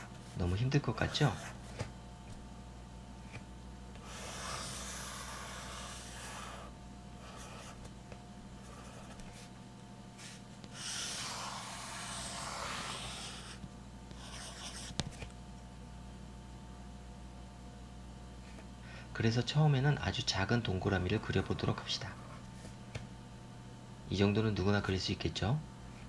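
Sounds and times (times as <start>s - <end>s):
pencil scratching on paper: 0.0s - 1.8s, 4.0s - 7.8s, 10.2s - 15.0s.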